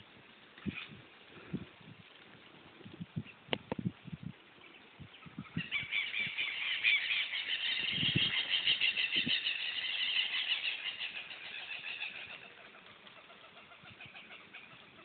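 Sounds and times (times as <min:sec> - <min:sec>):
flock of birds chattering: 0:04.6 - 0:15.0.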